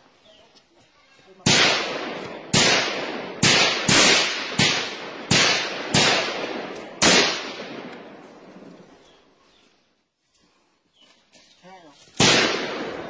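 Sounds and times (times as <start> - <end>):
gunshots with echo: 1.4 - 8.6, 12.2 - 13.0.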